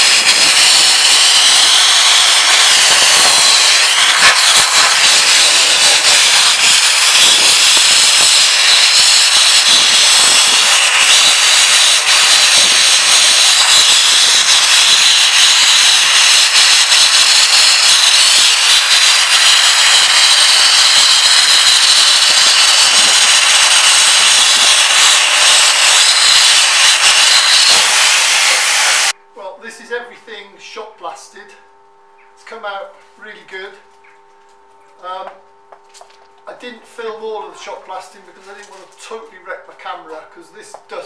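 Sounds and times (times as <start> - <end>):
shot blaster hissing: 0.0 - 29.2.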